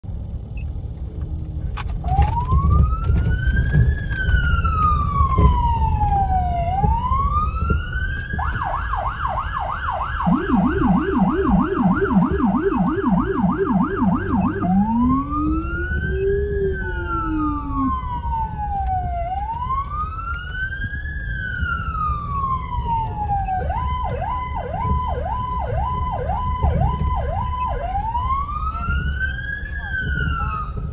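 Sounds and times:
vehicle and road rumble: 0.0 - 30.9
low-tone siren: 2.0 - 30.9
electronic siren wailing and yelping: 2.1 - 30.9.

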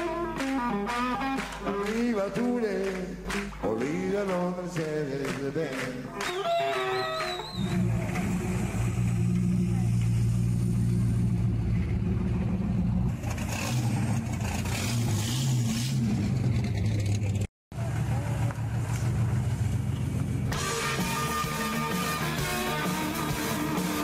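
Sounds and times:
music: 0.0 - 7.9, 20.5 - 24.0
car engines idling: 7.4 - 22.2.

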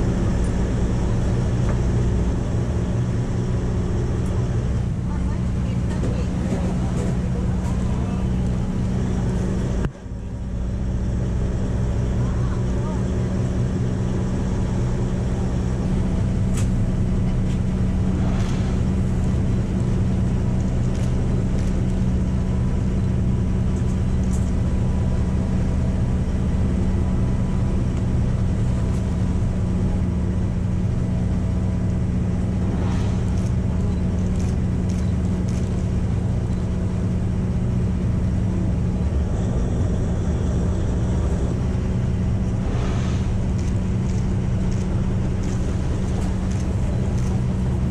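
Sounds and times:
boat engine humming: 0.0 - 47.9.

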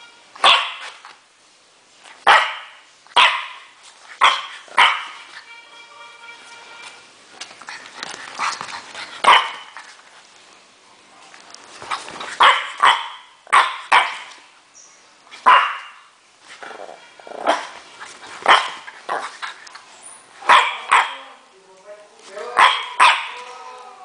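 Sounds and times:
puppy barking: 0.4 - 1.0, 2.2 - 5.3, 9.2 - 9.8, 12.4 - 14.4, 15.4 - 16.1, 16.8 - 17.8, 18.4 - 19.4, 20.4 - 21.4, 22.5 - 23.5.

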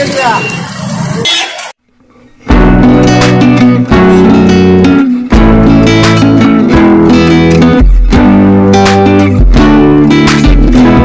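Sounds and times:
guitar music with bass: 2.3 - 11.0.

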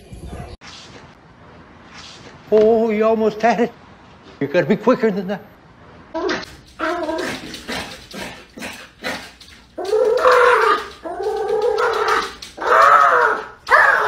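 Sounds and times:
dog paws tapping on glass: 6.4 - 14.0
dog whining: 9.3 - 14.0.

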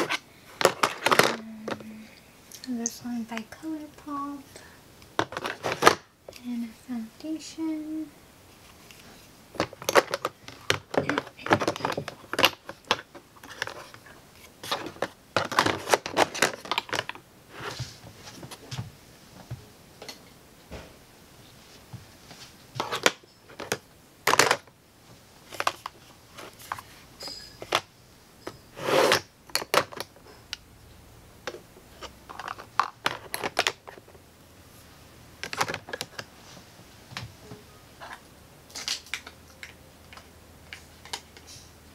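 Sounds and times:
plastic makeup containers clicking: 0.0 - 1.9, 5.1 - 6.0, 9.6 - 14.0, 14.6 - 17.2, 29.5 - 30.2, 31.5 - 34.2, 35.4 - 36.3.

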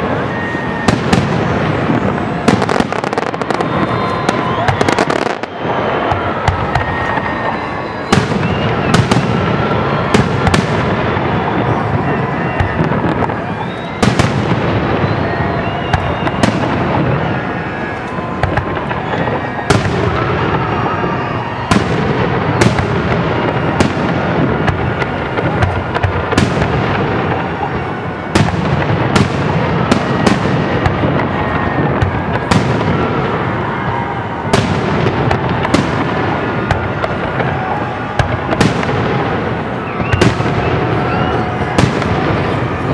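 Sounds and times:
constant rumble of fireworks display: 0.0 - 42.9
fireworks bursting: 0.0 - 42.9.

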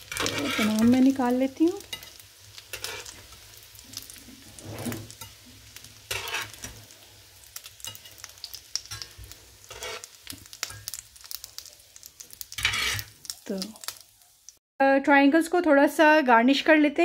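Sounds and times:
metal turner scraping a pan: 0.0 - 7.0, 7.6 - 11.4, 12.4 - 13.2
oil sizzling in a frying pan: 0.0 - 14.6.

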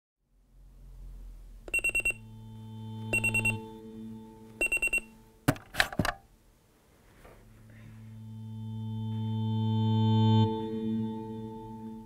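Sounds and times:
faint low hum: 0.3 - 9.6
alarm clock beeping: 1.7 - 2.2, 3.1 - 3.6, 4.6 - 5.1.

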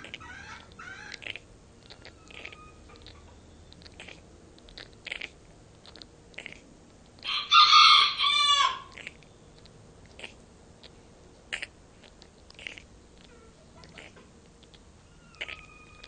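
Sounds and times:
hen rasping breaths: 0.0 - 9.3, 10.1 - 16.0
hen crow-like call: 7.2 - 8.9.

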